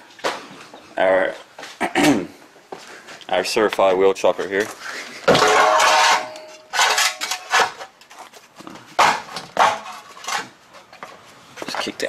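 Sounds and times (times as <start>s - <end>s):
metal scraping on concrete: 4.6s - 8.3s, 9.1s - 10.9s.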